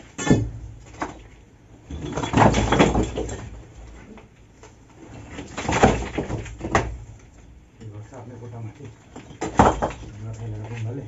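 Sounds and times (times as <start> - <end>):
stones clattering onto rubble: 0.0 - 4.2, 5.1 - 7.5, 9.0 - 10.8
scraping of stone: 9.0 - 10.8
crowbar knocking on stone: 9.2 - 10.2.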